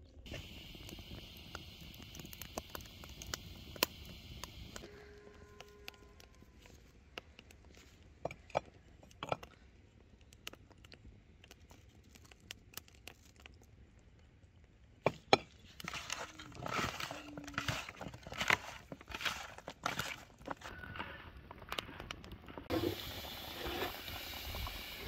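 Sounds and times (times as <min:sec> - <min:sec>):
wet squishing of hands mixing: 0:15.8 - 0:20.7.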